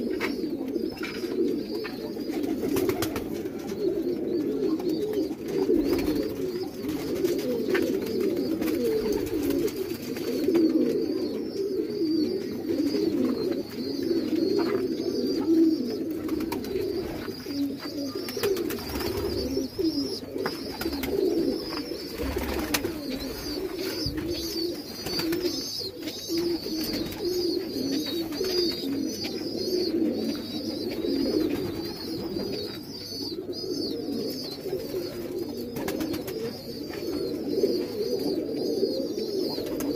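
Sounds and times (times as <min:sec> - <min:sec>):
pigeons cooing: 0:00.0 - 0:39.9.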